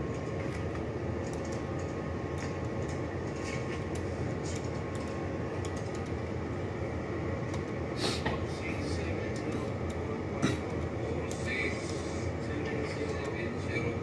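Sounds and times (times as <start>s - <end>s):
pens and paper rustling: 0.2s - 5.2s.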